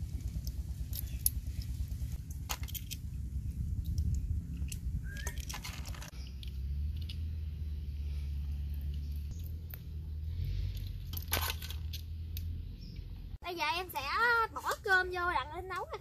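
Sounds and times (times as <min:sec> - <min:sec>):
steady low rumble: 0:00.0 - 0:16.0
shells clicking and scraping: 0:00.3 - 0:07.4.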